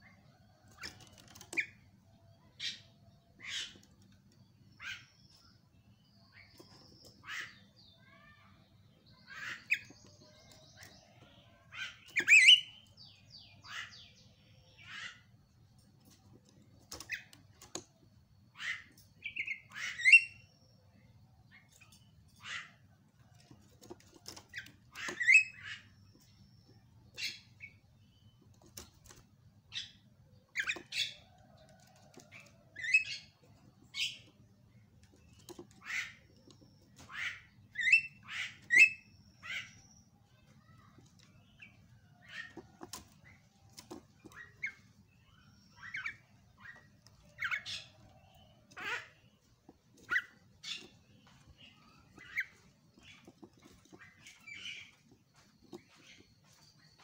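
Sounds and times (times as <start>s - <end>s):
bird harsh scratchy calls: 35.3s - 39.8s, 42.2s - 43.0s, 45.8s - 56.4s.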